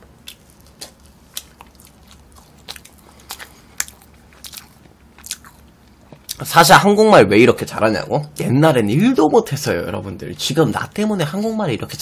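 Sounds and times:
chewing and mouth smacks: 0:00.1 - 0:06.4.

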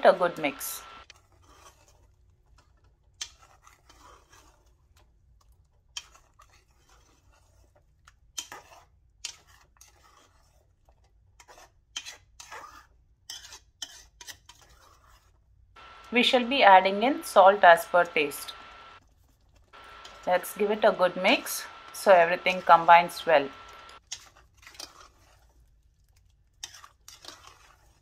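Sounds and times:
spoon scraping metal pot: 0:26.6 - 0:28.0.

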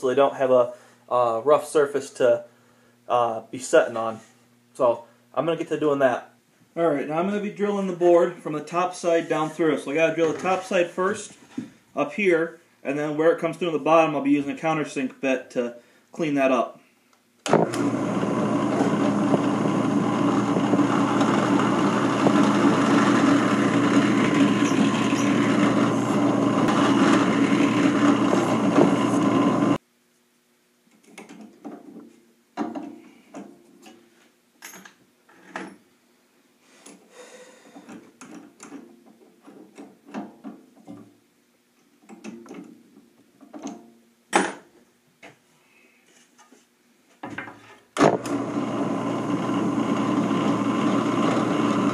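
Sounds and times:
drill press drilling wood: 0:17.5 - 0:29.8, 0:48.0 - 0:51.9.

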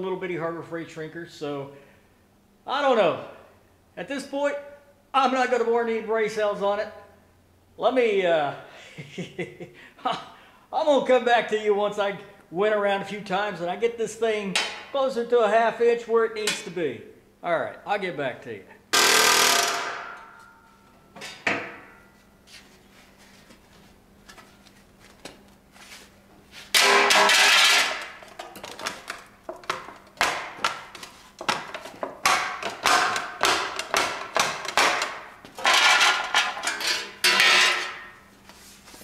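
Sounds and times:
air hammer striking steel: 0:19.0 - 0:20.6, 0:26.8 - 0:28.2
sharp metal strikes: 0:19.0 - 0:20.7.

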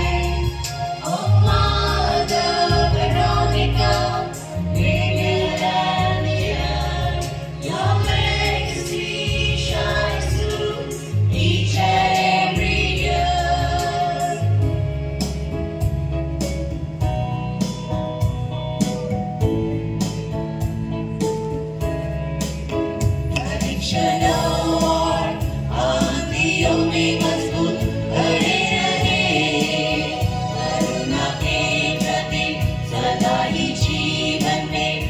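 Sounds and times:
choir singing through pa: 0:00.0 - 0:14.8, 0:23.4 - 0:35.0
electronic keyboard bass chords: 0:00.0 - 0:35.0.

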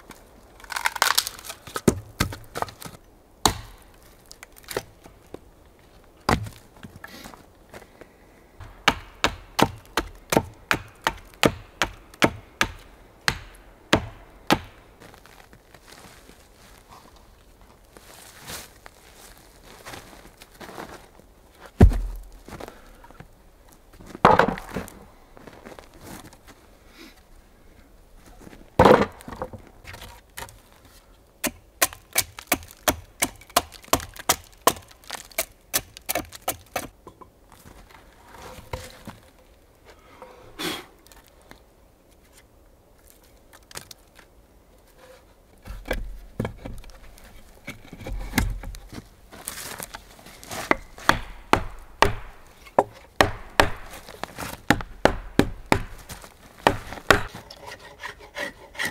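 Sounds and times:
hatchet strokes on wood: 0:54.7 - 0:58.9.

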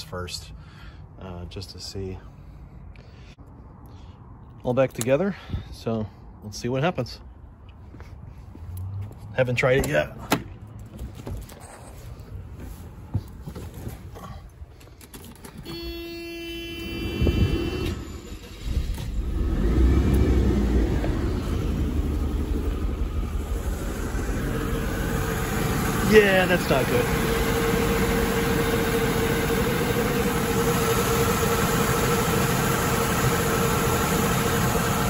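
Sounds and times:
engine idling with misfire: 0:16.8 - 0:35.0
engine starter cranking: 0:17.8 - 0:20.8.

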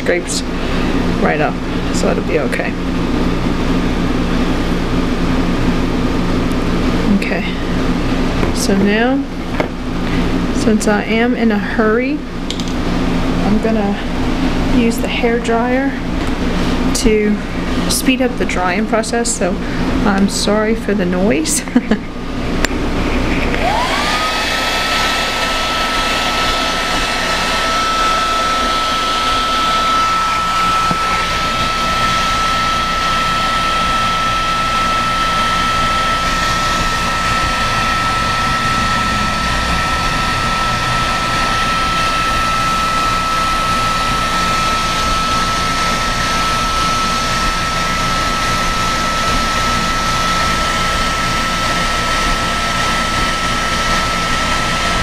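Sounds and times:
hair dryer motor whine: 0:00.0 - 0:11.1, 0:12.2 - 0:55.0
rush of blown air: 0:36.9 - 0:42.6.

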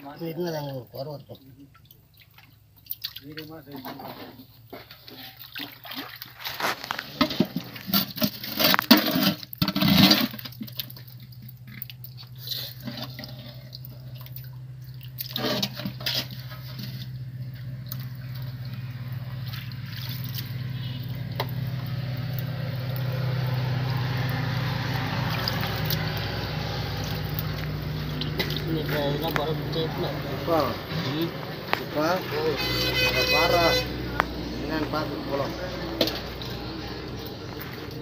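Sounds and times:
water splashing among stones: 0:05.1 - 0:32.3.

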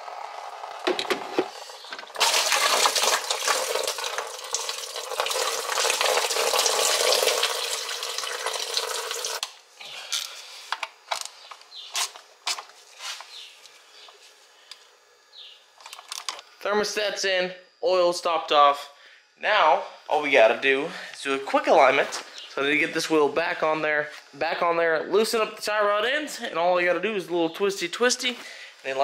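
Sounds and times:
oil pouring and splashing: 0:02.1 - 0:09.4.

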